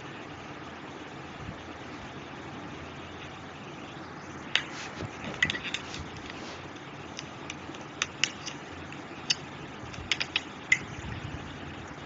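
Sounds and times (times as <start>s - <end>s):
steady hiss: 0.0s - 12.0s
metal tool clicking on plastic: 7.1s - 10.8s.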